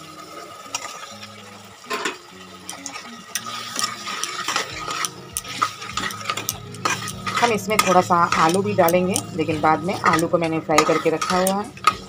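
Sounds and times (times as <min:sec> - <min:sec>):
frying sizzle: 0:00.0 - 0:12.0
metal spatula scraping pot: 0:01.8 - 0:12.0.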